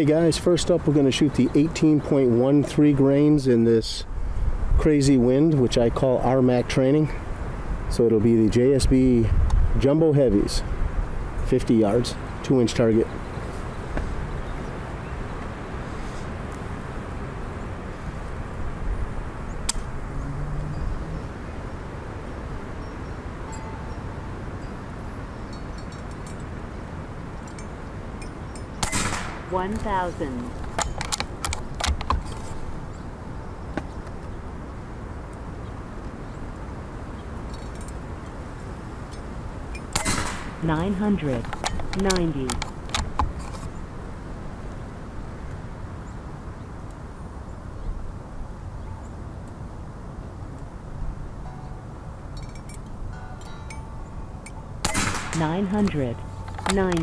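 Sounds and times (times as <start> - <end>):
wind buffeting microphone: 0.0 - 57.0
air rifle shot: 28.8 - 29.6, 40.0 - 40.7, 54.8 - 55.7.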